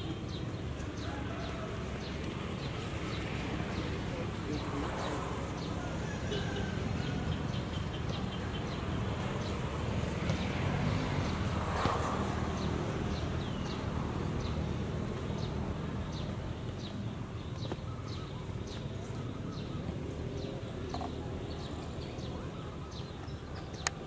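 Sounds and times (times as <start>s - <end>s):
bird chirping: 12.5s - 24.0s.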